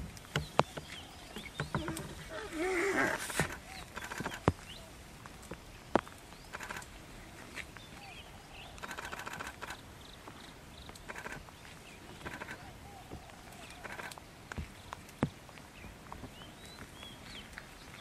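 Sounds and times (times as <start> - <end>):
bird chirps: 0.3 - 4.9
sharp clicks: 3.1 - 4.6, 6.4 - 6.9, 8.8 - 9.8, 10.8 - 11.5, 12.2 - 12.6, 13.7 - 14.2.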